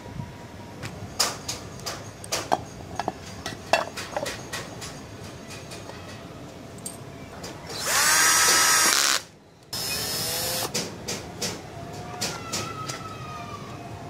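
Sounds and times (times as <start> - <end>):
electric drill whining: 7.7 - 10.7.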